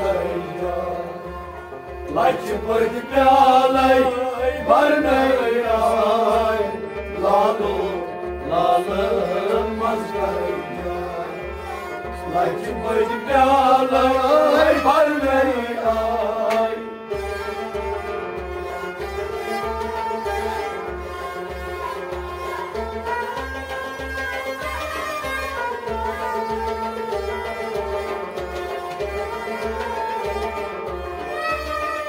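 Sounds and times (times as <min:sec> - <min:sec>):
men singing: 0:00.0 - 0:17.1
harmonium: 0:00.0 - 0:32.0
stringed instrument: 0:00.0 - 0:32.0.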